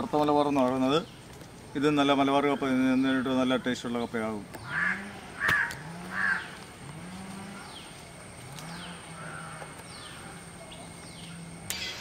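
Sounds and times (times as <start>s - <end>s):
loud caw: 4.6s - 6.6s, 9.1s - 10.3s
low drawn-out animal call: 4.7s - 7.9s, 8.5s - 10.5s.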